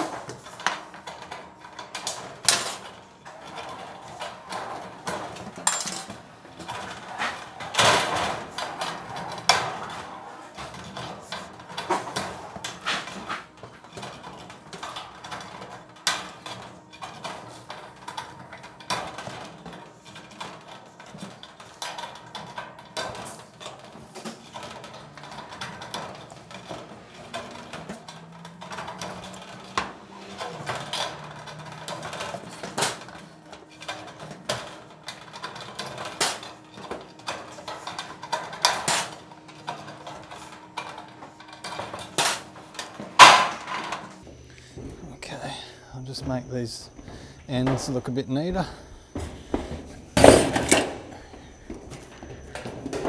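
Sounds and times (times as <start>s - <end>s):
sheet steel rattling and clanking: 0.0s - 53.0s.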